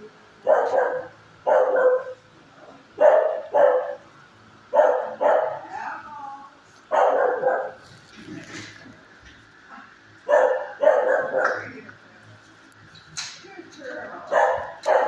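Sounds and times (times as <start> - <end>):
dog barking: 0.4 - 2.2, 3.0 - 4.0, 4.7 - 5.7, 6.9 - 7.8, 10.2 - 11.6, 14.3 - 15.0.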